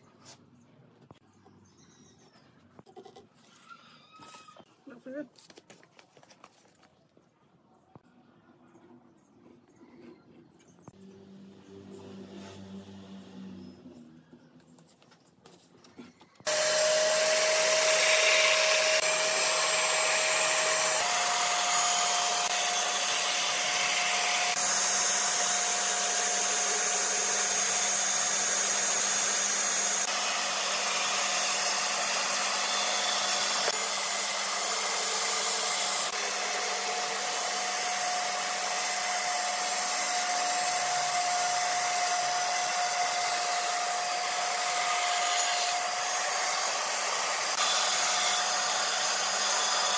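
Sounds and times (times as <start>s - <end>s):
bandsaw cutting wood: 16.4s - 49.9s.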